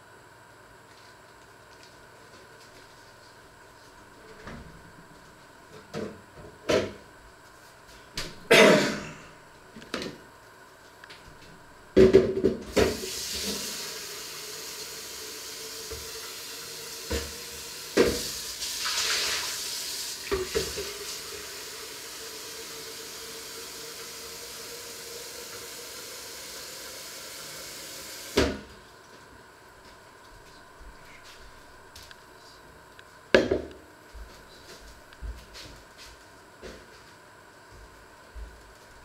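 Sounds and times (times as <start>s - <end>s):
tap running water into jug: 12.0s - 28.6s.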